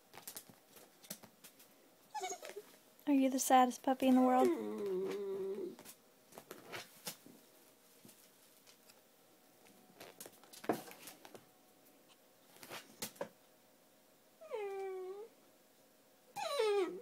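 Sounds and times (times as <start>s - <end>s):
puppy whining: 2.1s - 2.8s, 4.3s - 5.8s, 14.4s - 15.4s, 16.3s - 17.0s.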